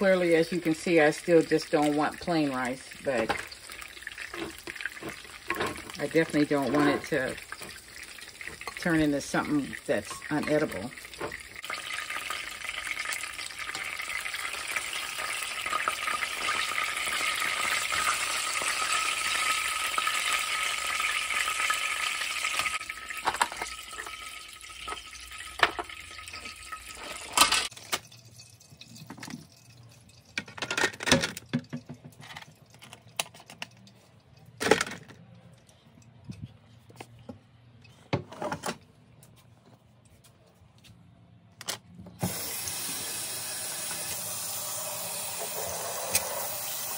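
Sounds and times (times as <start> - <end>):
chicken wings sizzling in oil: 0.0 - 27.4, 42.2 - 46.9
kitchenware knocking and clinking: 4.3 - 6.0, 10.1 - 11.4, 23.2 - 24.1, 30.4 - 32.4.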